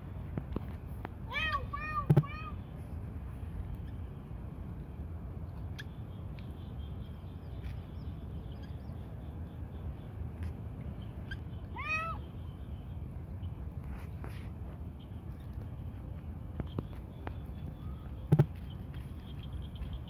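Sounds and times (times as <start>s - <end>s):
cat meowing: 11.7s - 12.2s.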